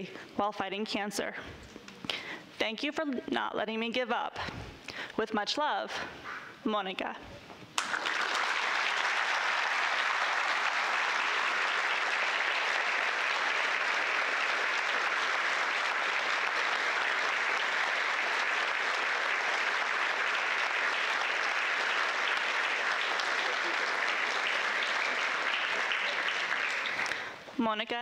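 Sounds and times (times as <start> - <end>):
audience applauding: 7.8 - 27.4.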